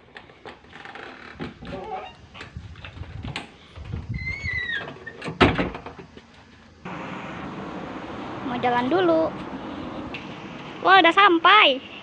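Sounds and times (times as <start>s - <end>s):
short falling squeak: 4.1s - 5.2s
glass door shutting with a bang: 4.8s - 6.0s.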